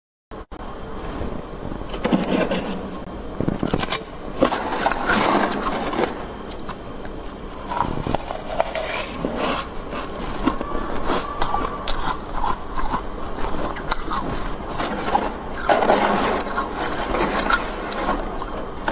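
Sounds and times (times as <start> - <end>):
metal spoon scraping frost: 1.9 - 2.9, 7.5 - 18.9.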